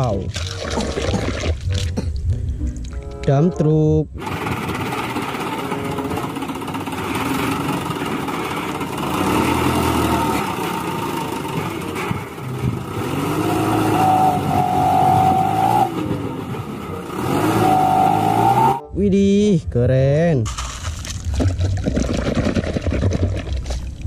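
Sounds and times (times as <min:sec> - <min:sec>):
truck engine running: 0:04.1 - 0:18.8.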